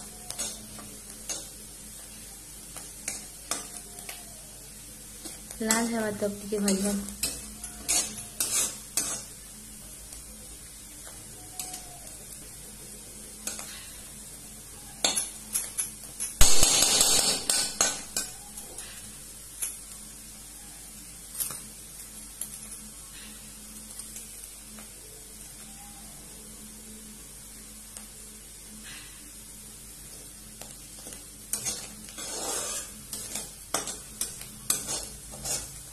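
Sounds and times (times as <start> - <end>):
metal spatula scraping a wok: 6.7 - 9.4, 31.5 - 35.8.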